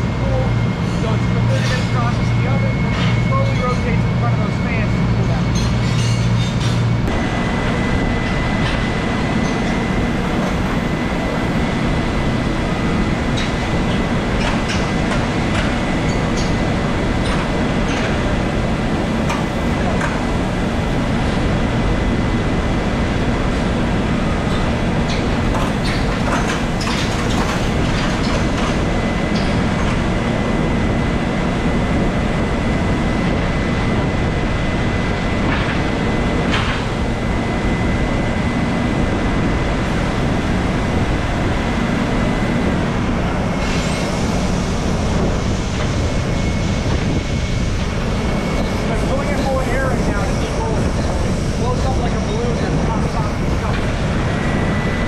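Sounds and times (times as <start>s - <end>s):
machinery low rumble: 0.0s - 55.0s
clanks and knocks: 24.5s - 30.0s.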